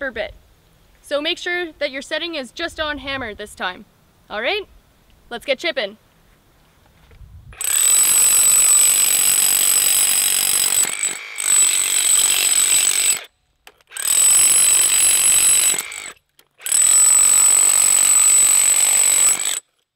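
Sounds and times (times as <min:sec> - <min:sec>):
rotary hammer chipping concrete: 0:07.6 - 0:19.8.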